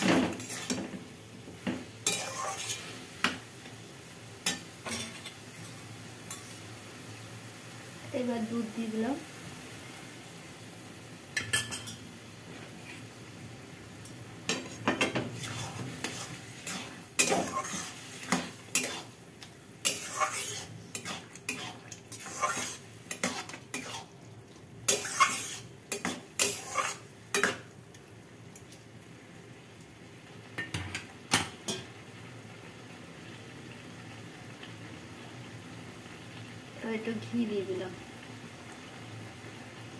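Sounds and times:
metal spatula scraping a metal pan: 0.0s - 0.8s, 2.0s - 3.0s, 14.5s - 19.2s, 19.8s - 24.1s, 24.9s - 27.6s.

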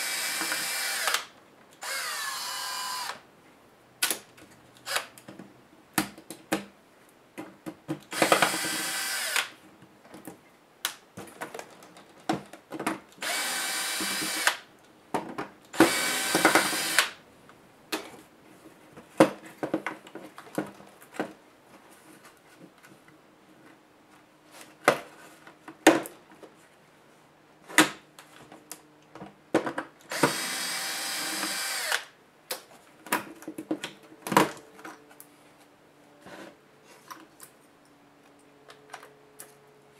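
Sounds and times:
electric screwdriver whirring: 0.0s - 3.2s, 8.1s - 9.5s, 13.2s - 14.6s, 15.8s - 17.2s, 30.1s - 32.1s.

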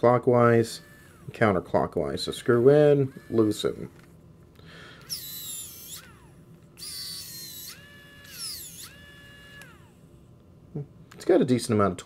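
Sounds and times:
electric screwdriver motor whining: 0.7s - 1.4s, 2.4s - 4.2s, 5.0s - 10.0s.

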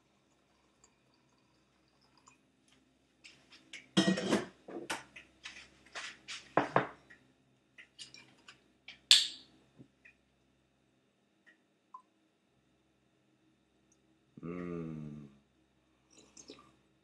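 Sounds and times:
dishes and utensils clinking: 4.0s - 5.0s.

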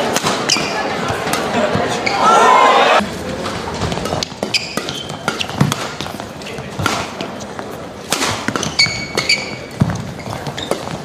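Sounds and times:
racket striking shuttlecock: 0.0s - 1.5s, 4.0s - 6.2s, 6.8s - 7.3s, 8.0s - 10.0s
shoe squeaks on court: 4.4s - 5.6s, 8.5s - 11.0s.

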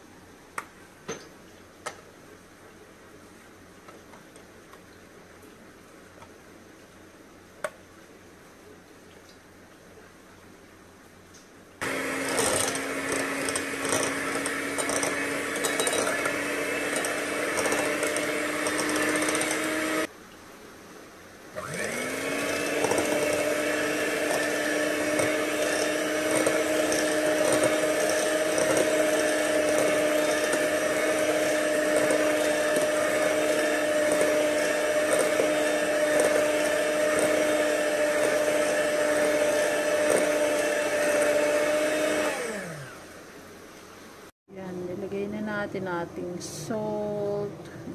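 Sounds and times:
electric hand mixer whining: 11.8s - 20.1s, 21.6s - 43.2s
mixer beaters clicking: 11.8s - 20.1s, 21.6s - 43.0s.

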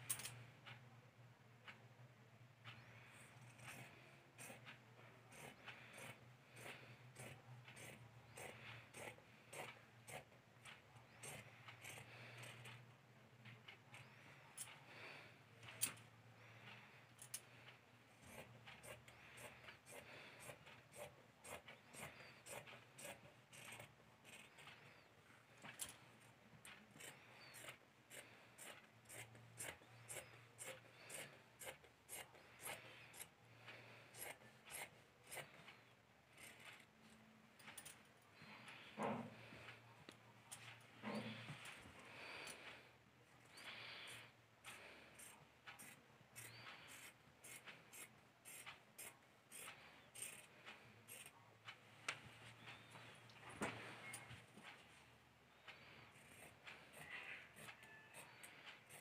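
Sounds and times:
scissors snipping cloth: 3.2s - 12.8s, 18.2s - 25.0s, 26.6s - 33.3s.

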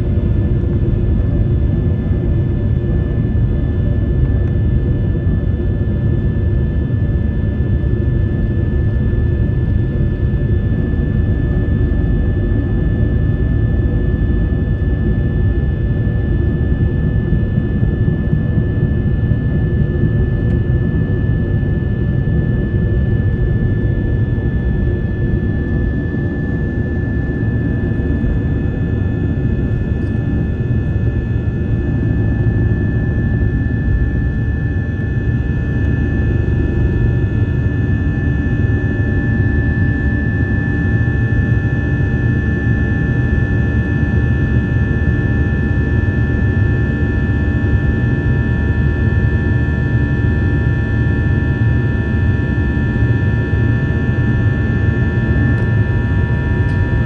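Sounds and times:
high engine whine: 0.0s - 57.0s
jet engines rumbling: 54.8s - 57.0s.

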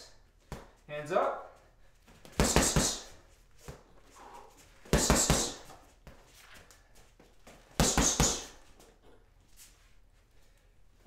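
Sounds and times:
boxing gloves punching heavy bag: 2.2s - 3.2s, 4.8s - 5.8s, 7.7s - 8.6s.

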